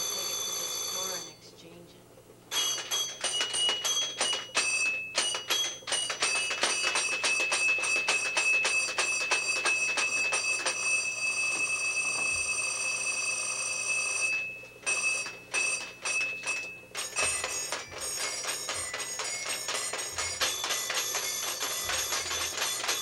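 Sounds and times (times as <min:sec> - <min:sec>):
toy clicking: 0:02.5 - 0:10.8, 0:15.2 - 0:23.0
toy electronic tone: 0:02.5 - 0:23.0.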